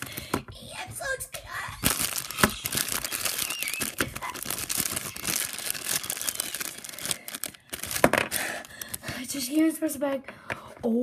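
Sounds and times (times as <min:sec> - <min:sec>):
plastic bag crinkling: 0:01.8 - 0:09.3.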